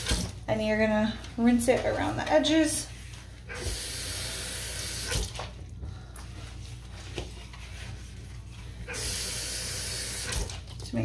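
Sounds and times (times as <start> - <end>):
wiping basin with wet cloth: 0.7 - 3.5, 6.3 - 9.0
faucet running: 3.5 - 5.3, 8.9 - 10.5.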